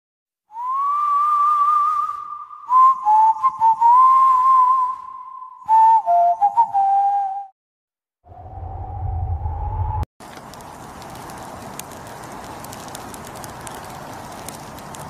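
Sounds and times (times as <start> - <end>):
whistled melody: 0.5 - 7.6.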